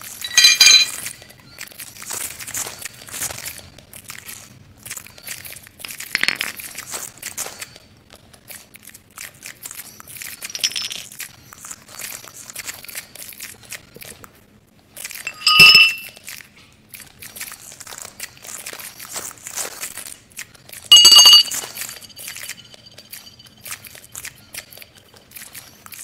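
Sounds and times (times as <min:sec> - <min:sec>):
light clinking of objects: 0:00.0 - 0:01.2, 0:10.4 - 0:11.3, 0:15.2 - 0:16.2, 0:20.9 - 0:25.3
crackling and crinkling: 0:00.0 - 0:15.3, 0:16.1 - 0:20.9.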